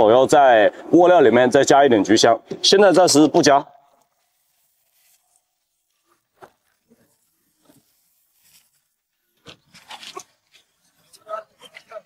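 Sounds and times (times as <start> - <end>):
faint rustles of dry packets: 3.8 - 11.2.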